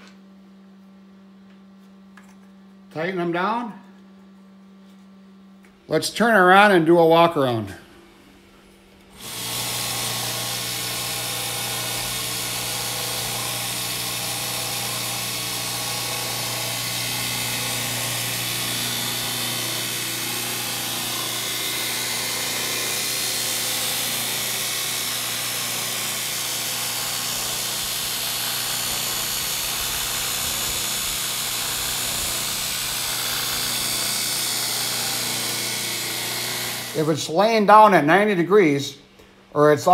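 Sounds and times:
belt grinder motor humming: 9.2 - 37.2.

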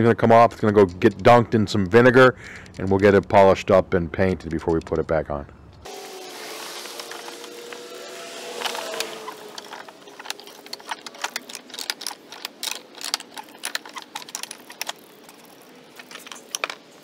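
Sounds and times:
wooden vise screw clicking: 8.6 - 16.9.

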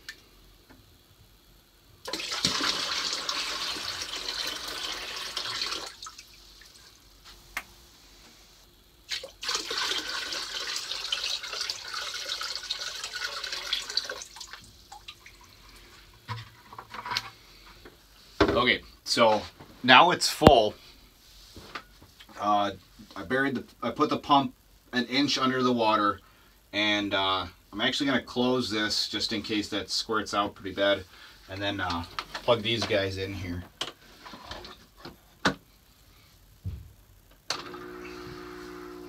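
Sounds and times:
water pouring into plastic cooler: 2.1 - 6.2, 9.1 - 15.4.

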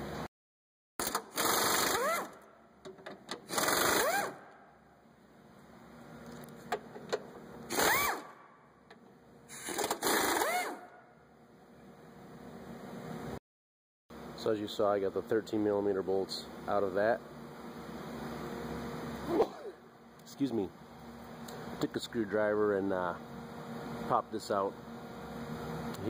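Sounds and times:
cordless ratchet running: 3.5 - 4.4, 7.7 - 8.3, 9.5 - 10.8.

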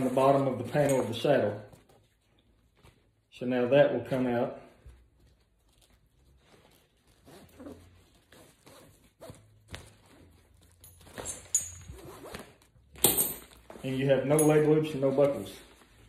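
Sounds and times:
strap scraping through buckle: 5.5 - 13.8.

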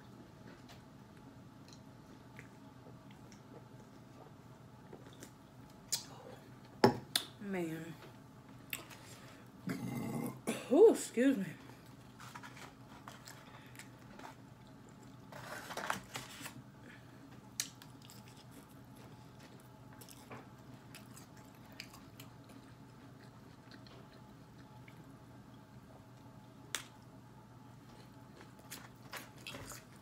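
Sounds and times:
faint room hum: 0.0 - 30.0
person chewing: 17.5 - 25.2, 27.8 - 30.0.

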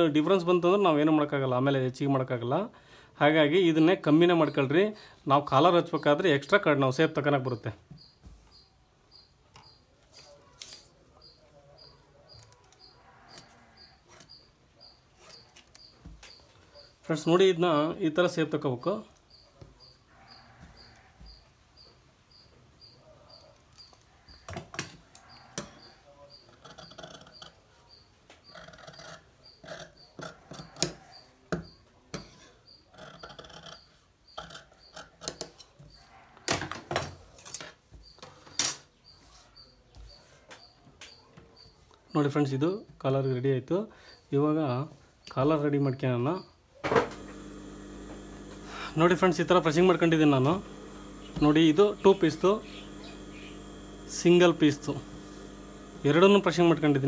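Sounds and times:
faint high chirps: 46.3 - 57.0.

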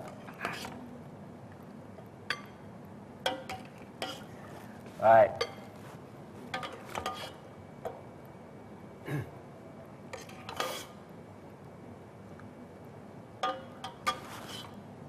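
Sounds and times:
metal ladle clinking on pot: 13.4 - 14.3.

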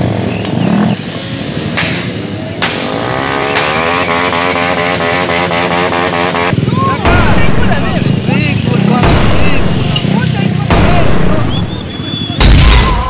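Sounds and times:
motorcycle engines revving: 0.0 - 12.4
sharp cracks: 1.8 - 3.8.

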